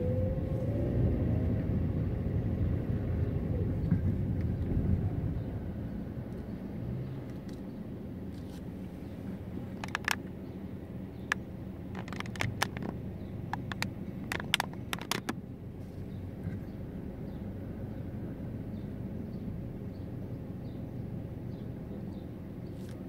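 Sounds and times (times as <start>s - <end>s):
car engine idling: 5.4s - 18.0s
sharp clicks: 9.7s - 10.3s, 11.2s - 15.4s.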